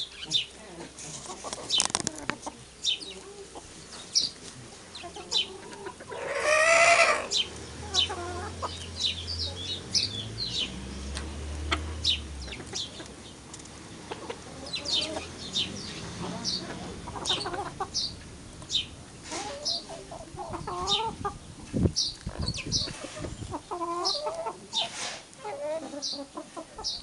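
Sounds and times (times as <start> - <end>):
chickens clucking and calling: 0.0 - 27.0
loud drawn-out chicken call: 6.1 - 7.4.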